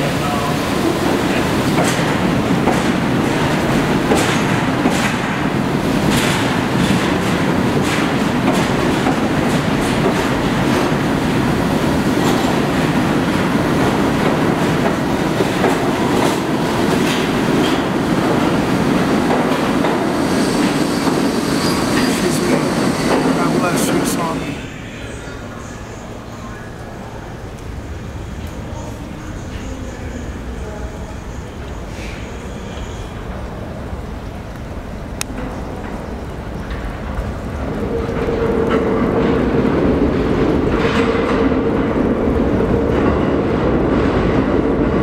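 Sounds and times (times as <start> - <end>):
train rumbling past: 0.0 - 45.0
wheels clacking over rail joints: 0.9 - 23.6.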